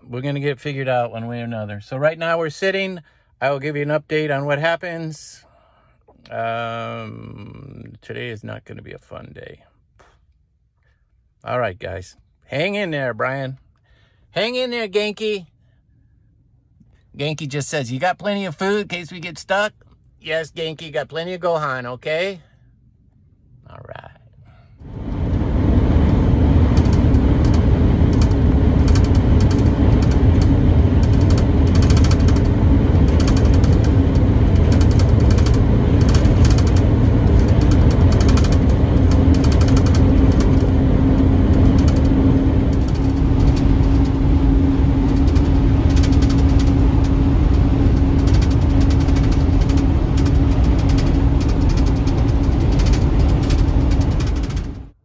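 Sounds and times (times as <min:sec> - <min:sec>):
vehicle road noise rumble: 0:23.9 - 0:55.0
rattles and clicks: 0:24.9 - 0:55.0.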